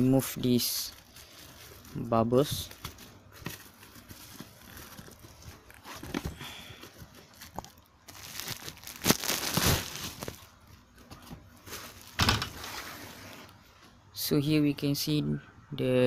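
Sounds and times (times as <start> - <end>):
bubble wrap crinkling: 0.0 - 13.5.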